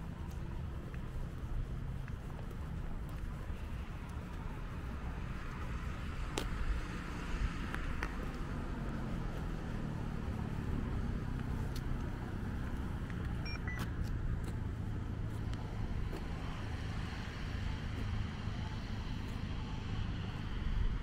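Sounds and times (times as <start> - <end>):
passing cars with tyre hiss: 0.0 - 21.0.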